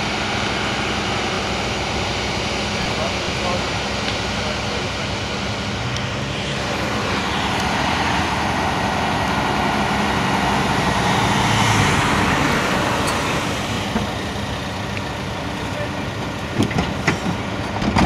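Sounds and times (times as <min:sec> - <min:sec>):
van driving past: 0:02.9 - 0:16.1.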